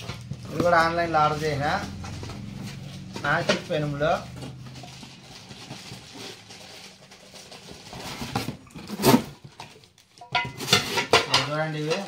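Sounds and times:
plastic wrapping crinkling: 0.0s - 12.0s
pans clattering: 8.0s - 12.0s.

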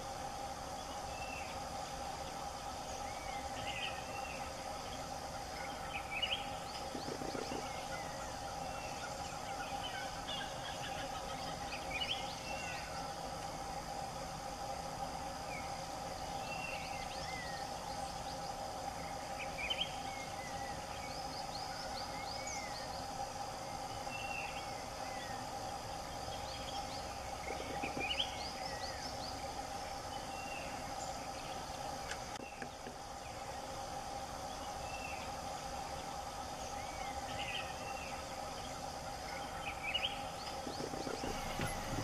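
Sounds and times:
steady drone: 0.0s - 42.0s
birds chirping and whistling: 39.5s - 42.0s.

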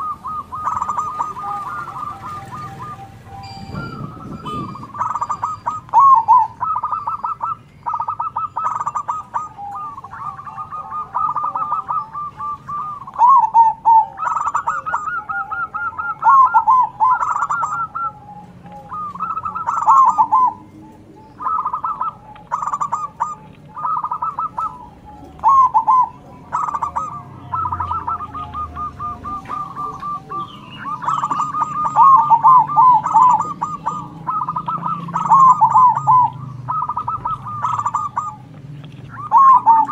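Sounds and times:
faint high chirps: 0.0s - 13.2s
doves trilled cooing: 0.0s - 39.9s.

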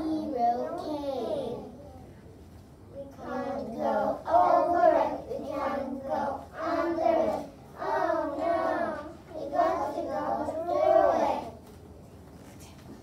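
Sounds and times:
children chanting in unison: 3.0s - 11.6s.

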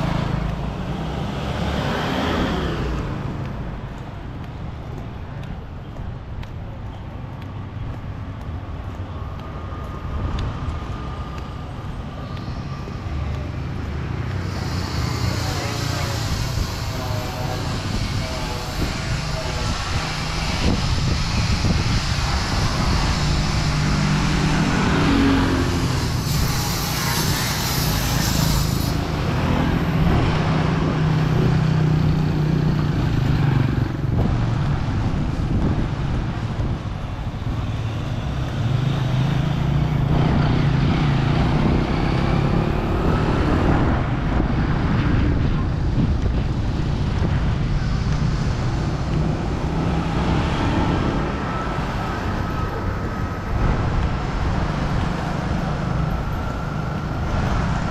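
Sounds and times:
passing vehicle engines: 0.0s - 57.9s
road noise: 0.0s - 57.9s.

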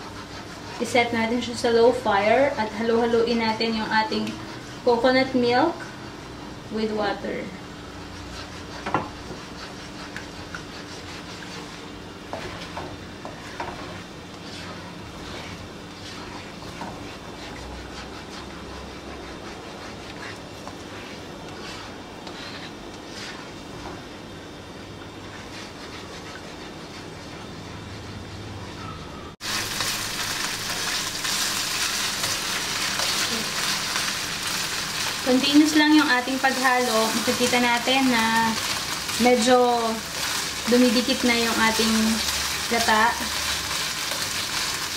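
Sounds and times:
spatula stirring liquid in wok: 0.0s - 28.5s, 29.4s - 44.9s
steady low hum: 0.0s - 42.7s
coconut milk simmering: 7.5s - 28.1s
spatula scraping and knocking pan: 7.8s - 24.1s, 29.7s - 44.7s
loud steady sizzle: 29.4s - 44.9s.

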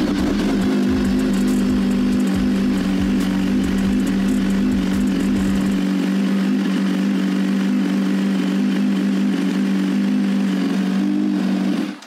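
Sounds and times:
motorcycle engine idling: 0.0s - 11.4s.

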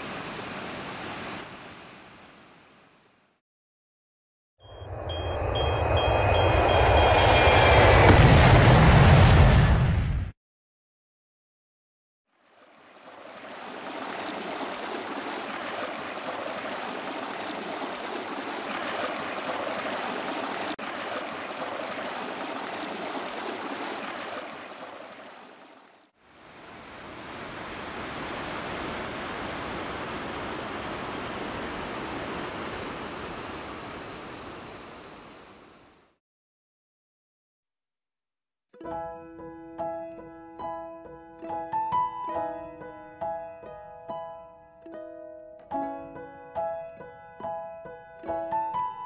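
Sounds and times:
creek water rushing over rocks: 12.4s - 35.4s.

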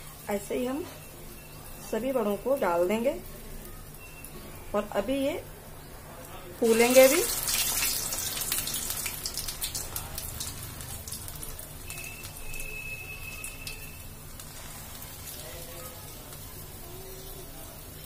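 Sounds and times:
fritters sizzling in hot oil: 0.0s - 18.0s.

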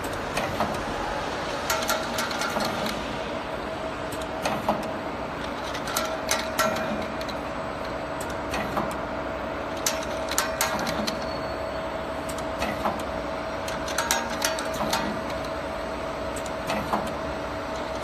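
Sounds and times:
sharp mechanical clacks: 1.5s - 3.0s, 4.1s - 9.1s, 9.7s - 11.3s, 12.2s - 15.6s.

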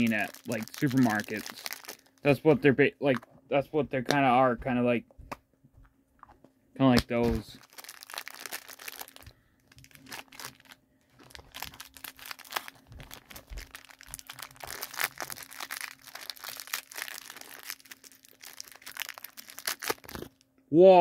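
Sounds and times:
plastic wrapper crinkling: 0.0s - 2.5s, 7.2s - 20.5s.

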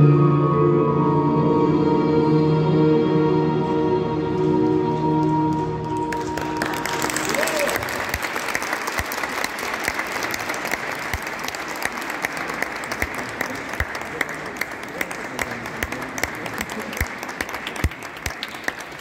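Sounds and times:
small audience applauding: 5.2s - 19.0s.

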